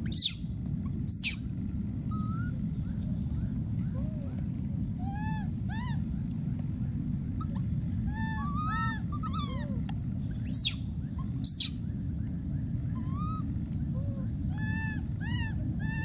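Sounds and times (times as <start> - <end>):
baby monkey screaming: 0.0 - 0.4, 1.1 - 1.4, 2.1 - 2.5, 7.4 - 9.8, 10.4 - 11.8, 12.9 - 13.5, 14.1 - 16.0
steady low rumble: 0.0 - 16.0
baby monkey cooing: 7.4 - 9.8, 10.5 - 11.7.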